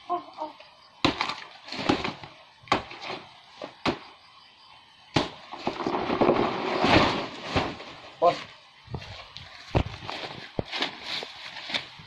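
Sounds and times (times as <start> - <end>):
blade chopping plant trunk: 1.0 - 3.2, 5.1 - 7.8
plant crashing through leaves: 5.2 - 8.4.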